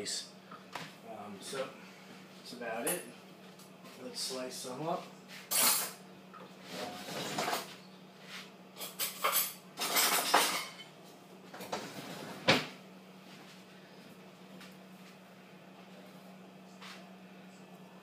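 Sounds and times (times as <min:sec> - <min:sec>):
cutlery and kitchenware clattering: 0:08.8 - 0:10.9.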